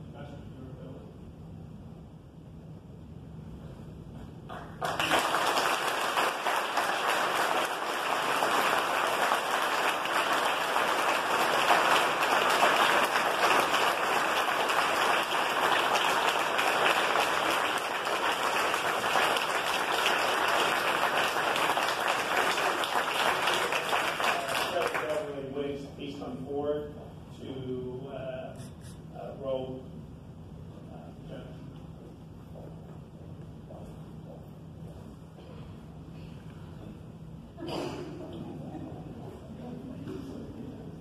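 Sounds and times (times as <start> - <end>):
crowd applauding: 4.5 - 25.3.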